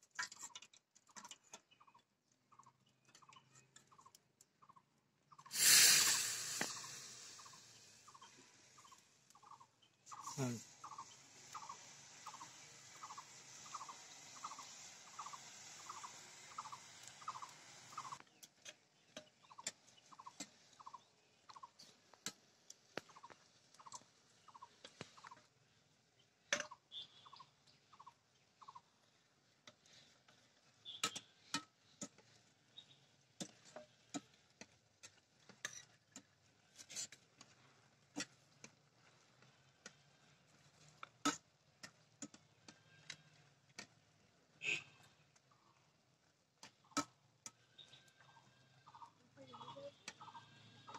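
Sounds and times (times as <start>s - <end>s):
bird calling: 5.3s - 18.2s
oil sizzling: 5.5s - 9.2s, 10.0s - 18.2s.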